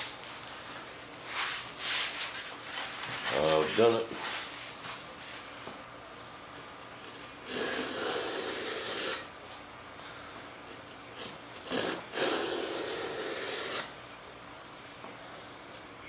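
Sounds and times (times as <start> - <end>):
hand tool shaving wood: 10.7 - 13.9.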